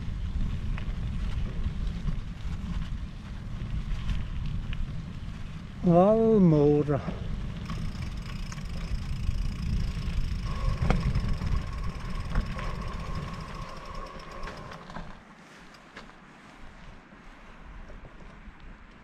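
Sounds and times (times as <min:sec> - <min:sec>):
bike riding rumble: 0:00.0 - 0:19.0
bike clicks: 0:07.3 - 0:16.1
faint motor whine: 0:07.6 - 0:16.1.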